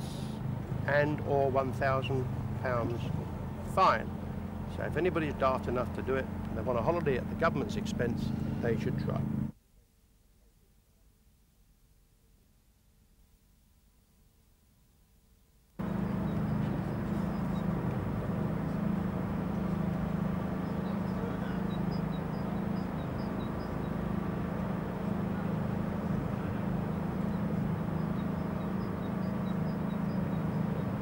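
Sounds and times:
outdoor background rumble: 0.0s - 9.6s, 15.8s - 31.0s.

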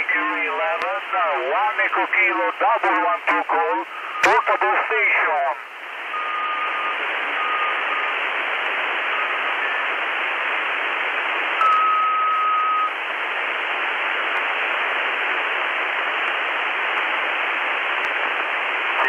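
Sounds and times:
steady radio tone: 0.0s - 10.3s, 17.0s - 19.0s
radio static hiss: 0.0s - 19.0s.

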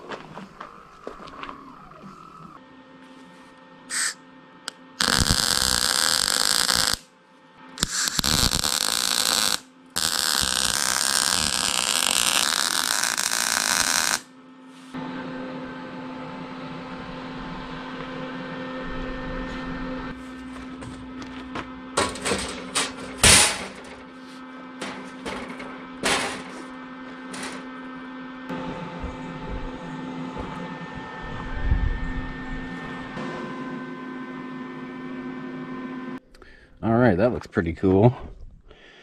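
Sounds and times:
steady hum: 0.0s - 37.2s
welder arc crackling: 3.9s - 7.1s, 7.8s - 14.3s.

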